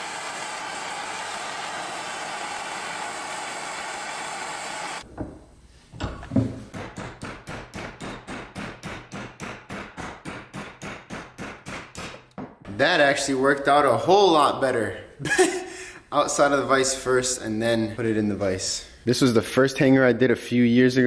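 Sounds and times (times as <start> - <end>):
gas torch hissing: 0.0 - 5.0.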